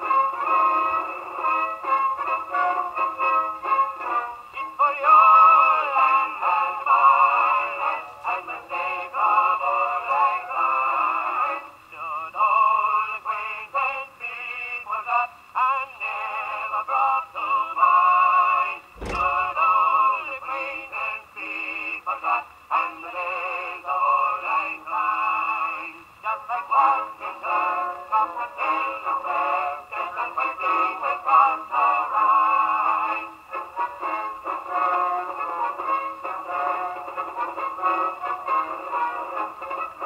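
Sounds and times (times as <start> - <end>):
person singing on old record: 0.0 - 40.0
sharp click: 19.0 - 19.7.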